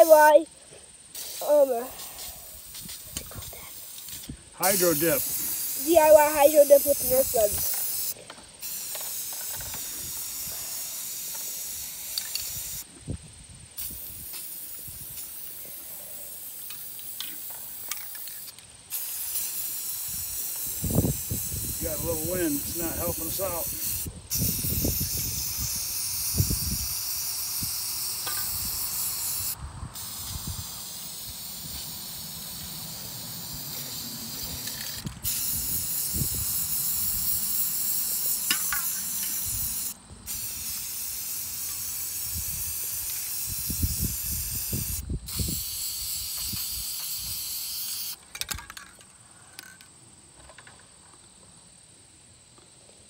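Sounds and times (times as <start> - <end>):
spray paint can hissing: 0.0 - 0.4, 1.1 - 12.9, 13.7 - 48.9
wind rumble on microphone: 12.9 - 14.2, 20.7 - 27.0, 29.6 - 30.6, 43.4 - 45.6.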